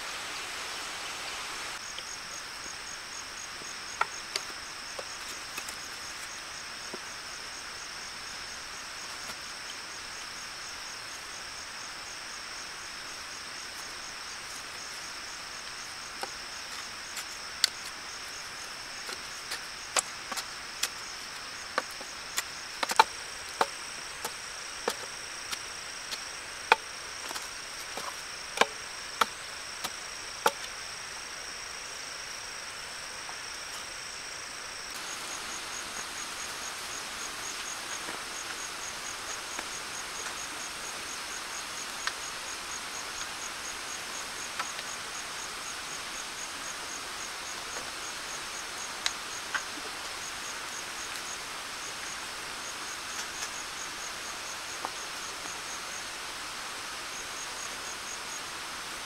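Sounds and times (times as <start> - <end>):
high insect drone: 0.0 - 59.0
insect chirping: 0.0 - 59.0.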